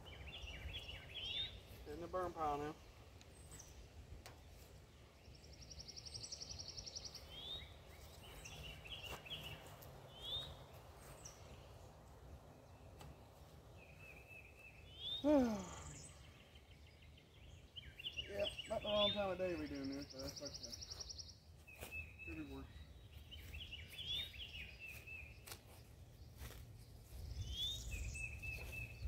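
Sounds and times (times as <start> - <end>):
birds chirping and singing: 0.0 - 29.0.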